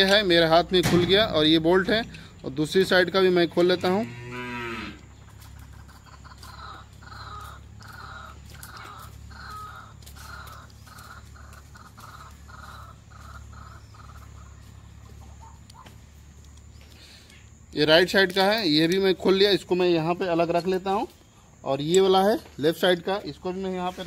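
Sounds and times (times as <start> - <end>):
crow cawing: 6.2 - 14.7.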